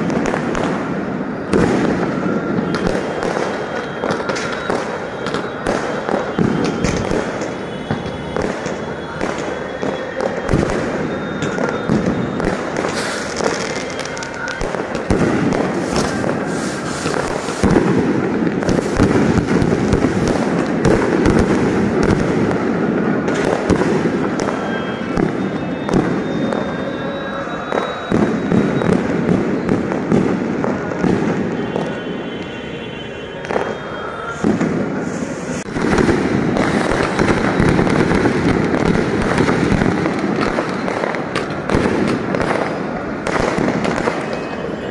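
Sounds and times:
fireworks crackling and bursting: 0:00.0 - 0:44.9.

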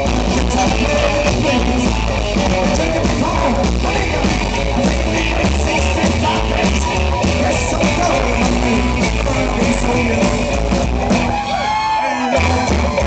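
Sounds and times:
rockabilly band playing: 0:00.0 - 0:13.0
swooping sliding guitar notes: 0:00.0 - 0:13.0.

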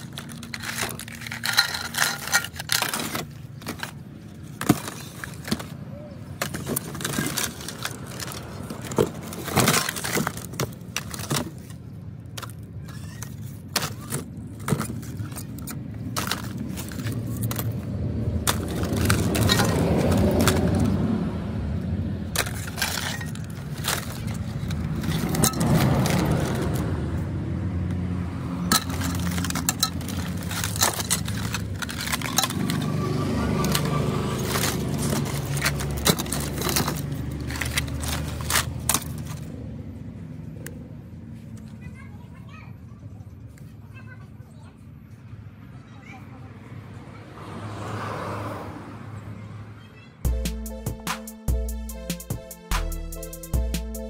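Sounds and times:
phones clattering in a box: 0:00.0 - 0:21.1, 0:22.3 - 0:26.9, 0:28.6 - 0:39.5.

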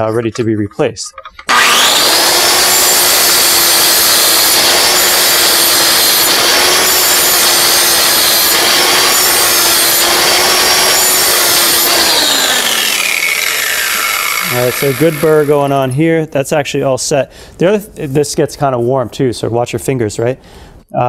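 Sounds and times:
angle grinder grinding steel: 0:01.3 - 0:16.0.

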